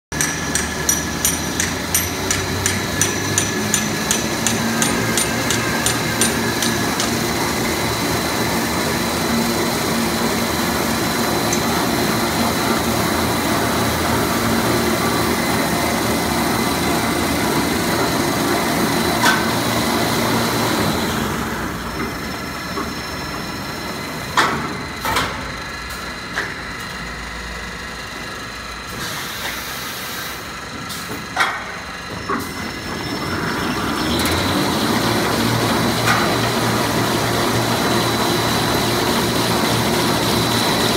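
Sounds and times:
sharp clicks and knocks: 0:00.1 - 0:07.2.

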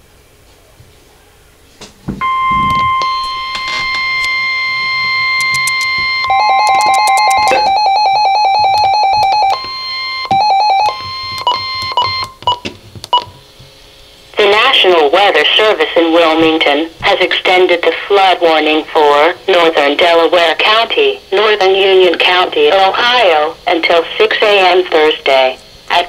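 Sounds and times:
steady high alarm tone: 0:02.2 - 0:12.5
rapid electronic alert beeping: 0:02.2 - 0:12.6.

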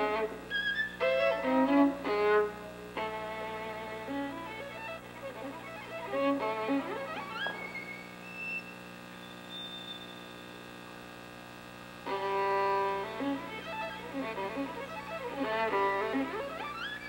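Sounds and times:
orchestral strings: 0:00.0 - 0:08.1, 0:12.1 - 0:17.0
solo violin: 0:00.0 - 0:08.8, 0:12.0 - 0:17.0.

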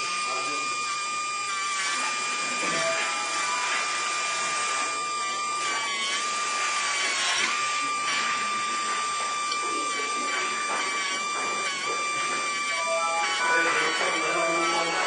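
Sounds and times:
dental handpiece whining: 0:00.0 - 0:15.0
bur grinding acrylic: 0:05.8 - 0:15.0.

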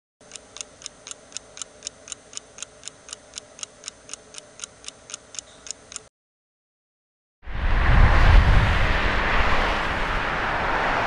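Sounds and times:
clock ticking: 0:00.2 - 0:06.1
faint steady hum: 0:00.2 - 0:06.1.

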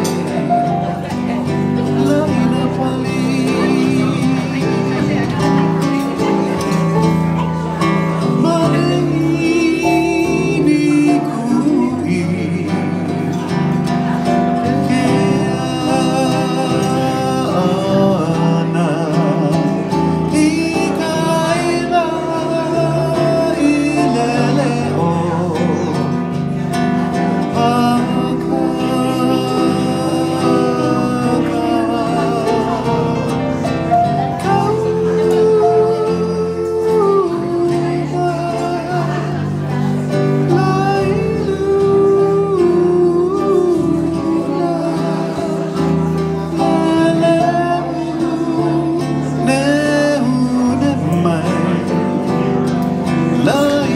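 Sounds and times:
acoustic guitar: 0:00.0 - 0:53.9
electronic keyboard melody: 0:00.0 - 0:53.9.

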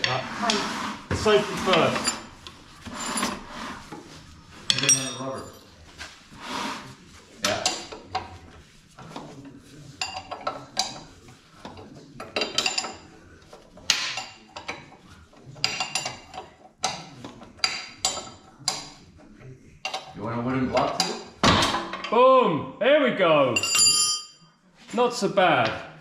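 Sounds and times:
metal tools clinking on steel: 0:04.7 - 0:05.7, 0:23.6 - 0:24.4.

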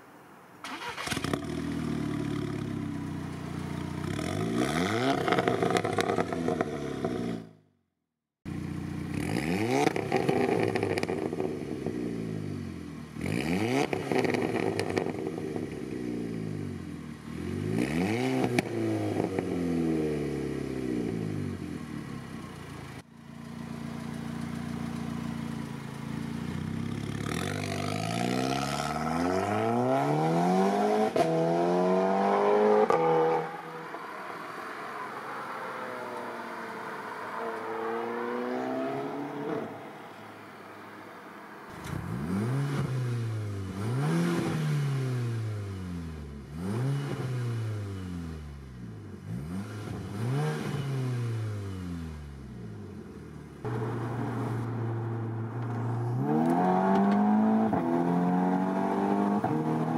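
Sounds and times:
car engine revving: 0:00.7 - 0:07.5, 0:26.2 - 0:40.1, 0:41.7 - 0:59.9.

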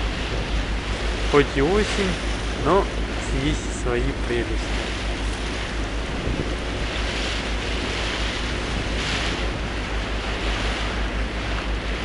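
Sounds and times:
water rushing along hull: 0:00.0 - 0:12.0
wind buffeting microphone: 0:00.0 - 0:12.0.

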